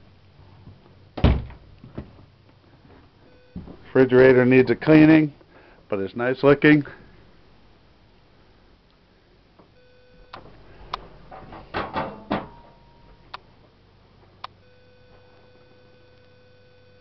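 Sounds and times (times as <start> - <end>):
faint steady whine: 0.0 - 17.0
refrigerator door clicks and knocks: 1.2 - 2.1, 11.3 - 12.7.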